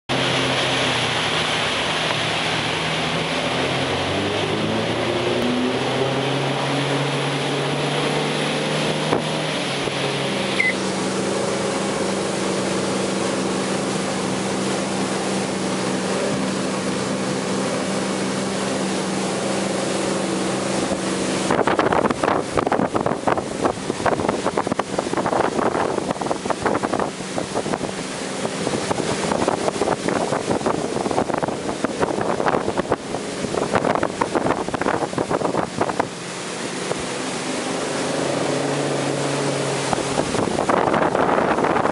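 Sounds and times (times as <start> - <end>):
boat engine running: 0.1 - 41.9
rushing water: 0.1 - 41.9
short high chirp: 10.5 - 10.8
wind buffeting microphone: 11.0 - 41.9.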